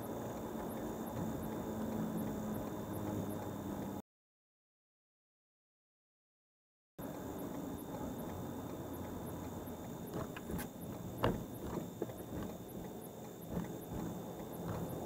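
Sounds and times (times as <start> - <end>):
car road noise: 0.0 - 4.0, 7.0 - 15.0
sharp knocks: 10.2 - 12.5.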